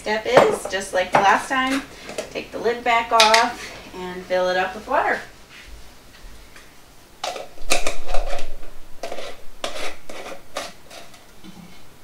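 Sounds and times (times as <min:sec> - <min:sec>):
lid twisting on glass jar: 0:07.2 - 0:11.3.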